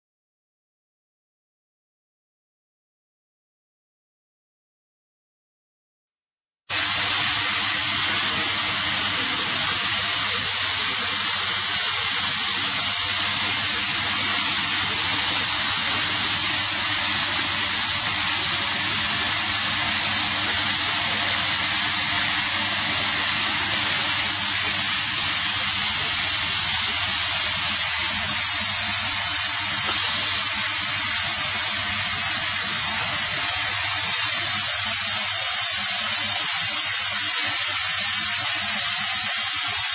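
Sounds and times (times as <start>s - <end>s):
steady loud hiss: 6.7s - 39.9s.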